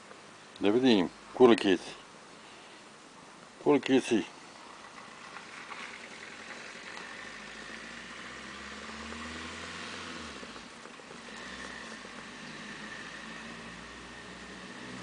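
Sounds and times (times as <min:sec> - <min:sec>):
vehicle engine humming: 0:04.4 - 0:15.0.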